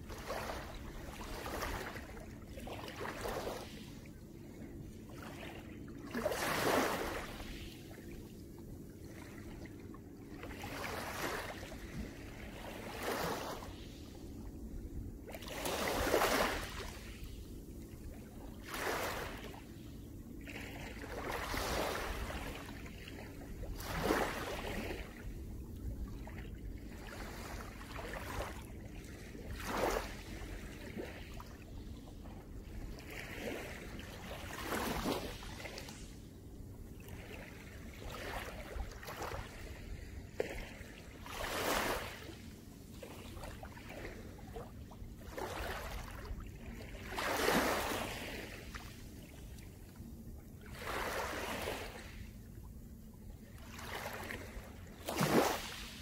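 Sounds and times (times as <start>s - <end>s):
waves lapping on pebbles: 6.1s - 7.9s, 10.5s - 14.2s, 15.4s - 17.4s, 18.6s - 19.8s, 20.5s - 25.2s, 26.8s - 31.4s, 32.7s - 36.2s, 37.0s - 42.5s, 45.2s - 49.7s, 50.6s - 52.2s, 53.6s - 56.0s.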